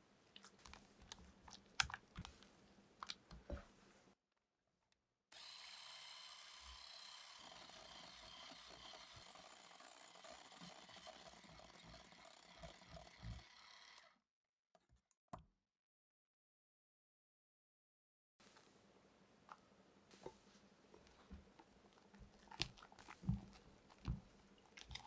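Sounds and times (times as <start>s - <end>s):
electric hand mixer whirring: 5.3s - 14.2s.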